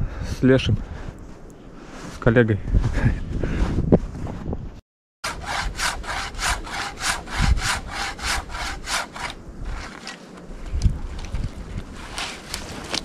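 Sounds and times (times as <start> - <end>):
hand saw cutting wood: 5.2 - 10.2.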